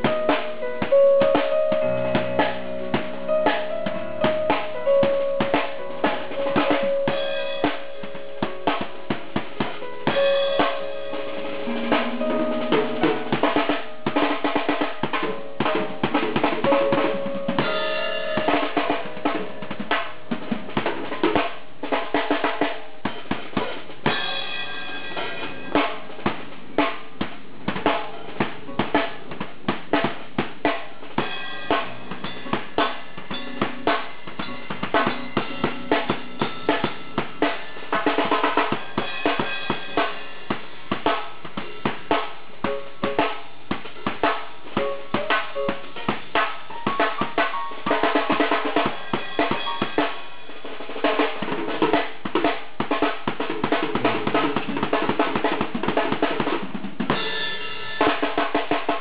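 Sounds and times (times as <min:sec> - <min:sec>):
cymbals: 0:00.0 - 0:27.1, 0:30.0 - 0:54.8, 0:57.0 - 0:59.0
snare drum: 0:00.0 - 0:57.4
kick drum: 0:40.5 - 0:50.0.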